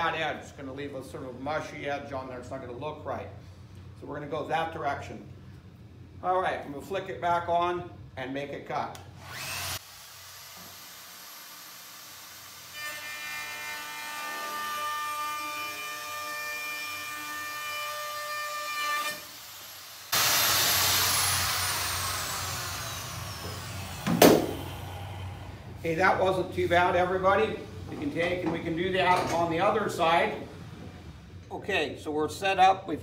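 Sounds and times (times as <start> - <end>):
router motor whining: 9.2 - 16.2, 20.0 - 25.8
sharp knock: 24.0 - 24.6.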